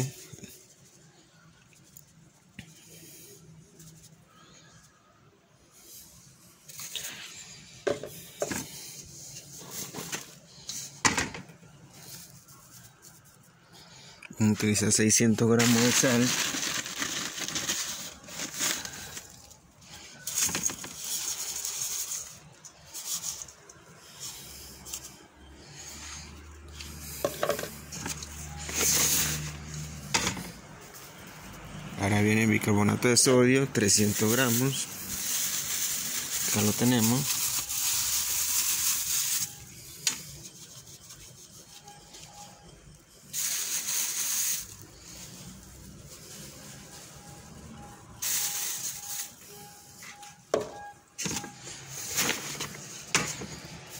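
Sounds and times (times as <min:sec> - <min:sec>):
plastic scoop scraping in bag: 0:06.7 - 0:11.0, 0:14.6 - 0:25.2, 0:25.8 - 0:31.3, 0:33.7 - 0:42.6, 0:51.2 - 0:53.9
salt poured into steel bowl: 0:33.9 - 0:39.6, 0:43.3 - 0:46.6.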